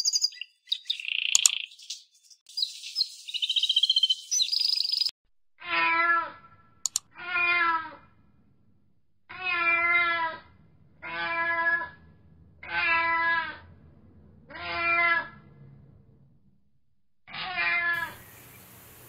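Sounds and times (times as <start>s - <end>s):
cat meowing: 5.6s - 6.4s, 7.2s - 8.0s, 9.3s - 10.4s, 11.0s - 12.0s, 12.6s - 13.6s, 14.5s - 15.4s, 17.3s - 18.2s.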